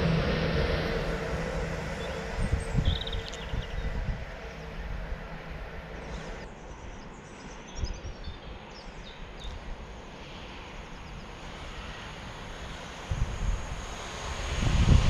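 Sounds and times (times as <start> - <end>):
low outdoor rumble: 0.0 - 15.0
small birds chirping: 2.0 - 4.6, 6.0 - 9.7.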